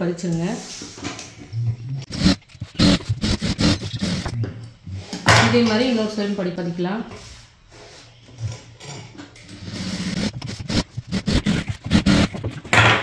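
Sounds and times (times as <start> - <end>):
sewing machine stitching: 2.0 - 4.4, 9.6 - 13.0.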